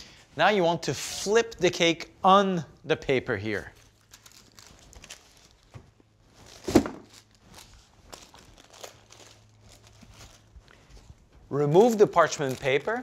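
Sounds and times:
paper rustling: 3.6 - 13.0
baking sheet thud: 6.6 - 7.1.

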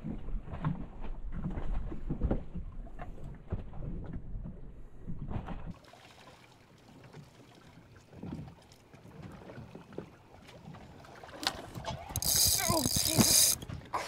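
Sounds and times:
water lapping against boat hull: 0.0 - 14.0
sharp clicks: 12.2 - 13.6.

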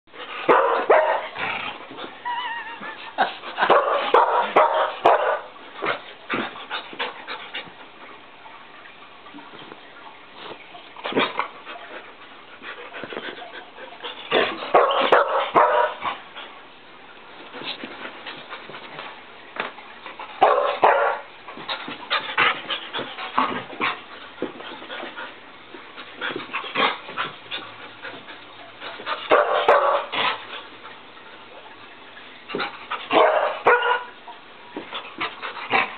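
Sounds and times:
puppy barking and yipping: 33.2 - 34.1.

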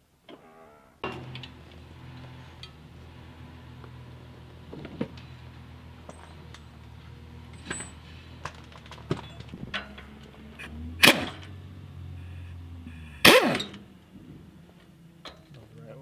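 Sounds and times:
metal parts clinking: 7.5 - 10.1
pneumatic impact wrench bursts: 10.6 - 11.4, 13.0 - 13.9.

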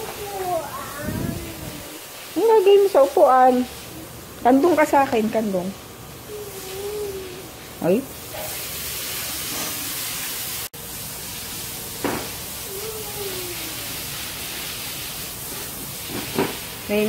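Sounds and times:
water hissing from hose nozzle: 11.3 - 17.0.

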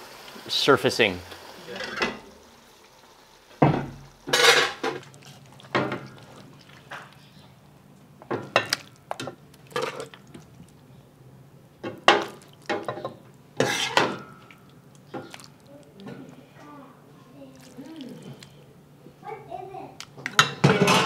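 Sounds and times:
metal ladle clanking against pot: 4.3 - 5.0, 11.8 - 14.5.

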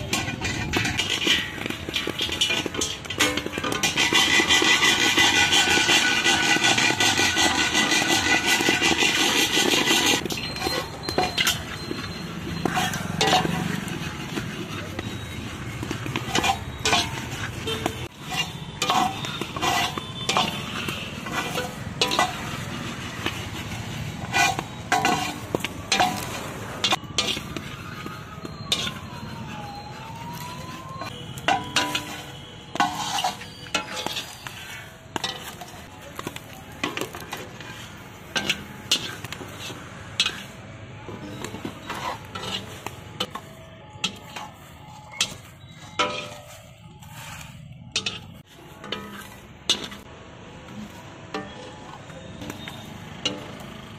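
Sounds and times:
corn kernels popping: 0.0 - 29.4, 30.3 - 43.5
iron ladle scraping a wok: 0.0 - 53.9
siren-like tone: 0.0 - 53.9.

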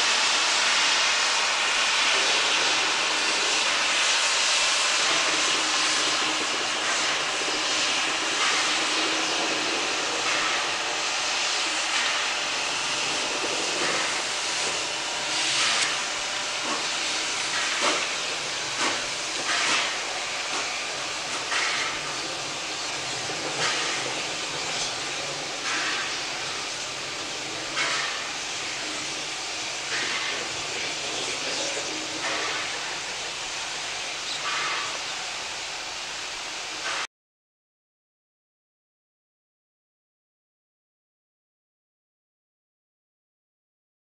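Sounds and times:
steam hissing: 0.0 - 37.1
steam locomotive exhaust chuffs: 0.0 - 37.1.

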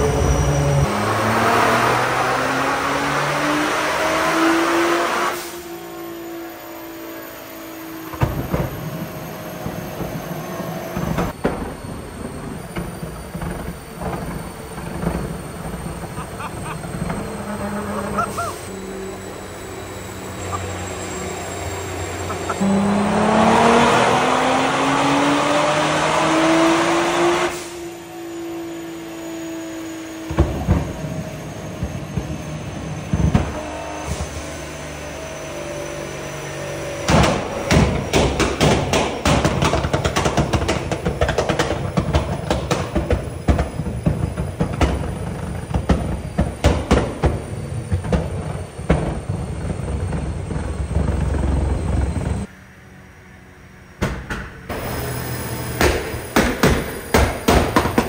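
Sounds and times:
car engine revving: 0.0 - 11.4, 13.1 - 52.6
exhaust pops and bangs: 10.9 - 17.4, 37.0 - 52.5, 55.7 - 58.0.

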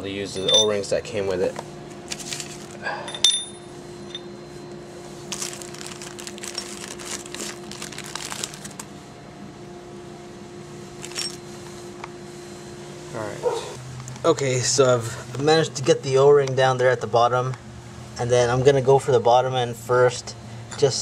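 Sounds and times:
steady hum: 0.0 - 21.0
plastic bag crinkling: 2.1 - 2.8, 5.3 - 8.9, 11.0 - 11.3.

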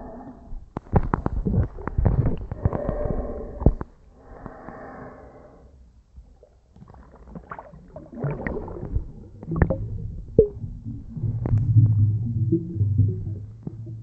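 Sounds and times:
muffled underwater knocks and clicks: 0.7 - 4.0, 8.2 - 14.0
water bubbling and gurgling: 6.2 - 14.0
low hum: 8.4 - 14.0.

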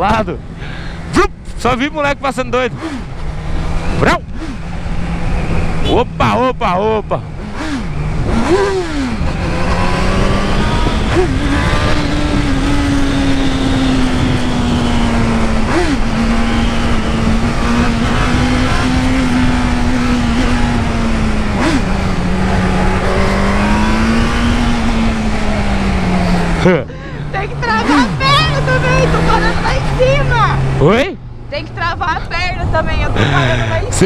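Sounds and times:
motorcycle engine running: 0.0 - 34.0
wind rushing over microphone: 7.2 - 26.6, 31.5 - 34.0.

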